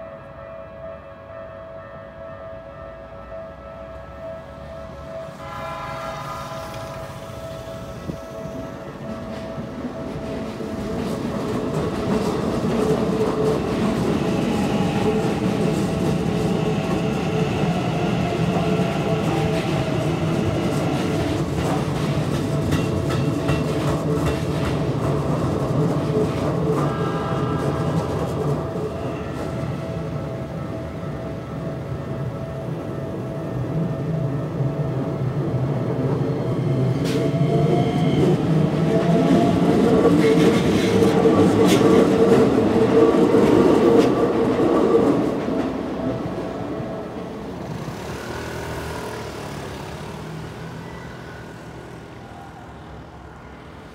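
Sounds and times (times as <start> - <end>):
level crossing warning bells: 0.0 - 40.0
train rumble and wheel clatter: 0.0 - 53.9
road traffic hum: 47.1 - 53.9
faint wheel squeal: 50.1 - 52.9.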